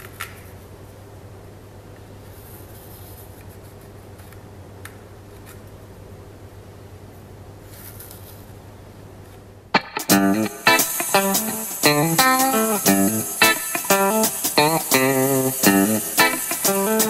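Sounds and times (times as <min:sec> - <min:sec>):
steady low hum: 0:08.6 - 0:17.0.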